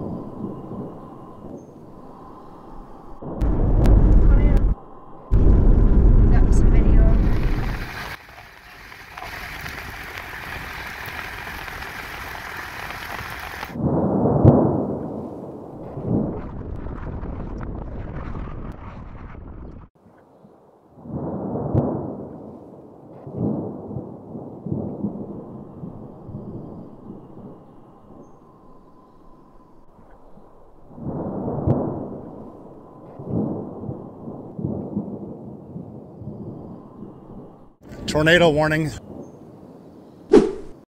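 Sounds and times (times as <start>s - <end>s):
strong wind gusting: 0.0s - 8.2s, 9.4s - 20.0s, 21.0s - 40.8s
thunder rumbling: 0.0s - 8.2s, 9.2s - 19.9s, 21.0s - 38.2s
thunder crack: 3.2s - 8.2s, 13.7s - 19.9s, 30.8s - 35.9s.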